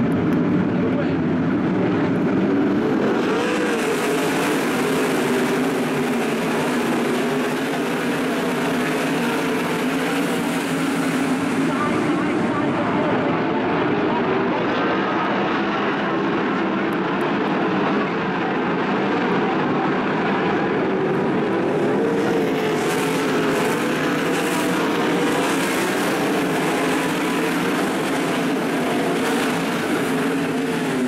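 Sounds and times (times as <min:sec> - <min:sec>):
race car engines droning: 0:00.0 - 0:31.0.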